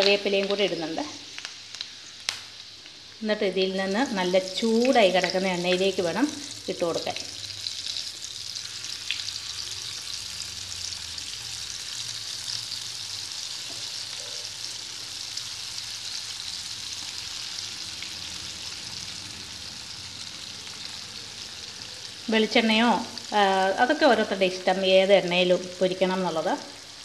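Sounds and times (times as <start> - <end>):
food deep-frying in oil: 0.0 - 27.0.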